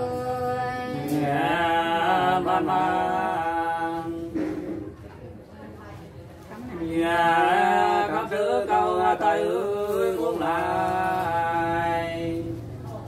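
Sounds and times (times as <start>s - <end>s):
person singing unaccompanied: 0.0s - 4.4s.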